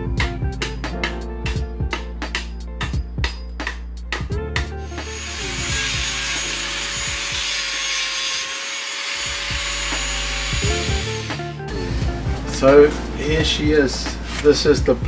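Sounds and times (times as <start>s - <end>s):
angle grinder grinding wood: 4.8s - 11.7s.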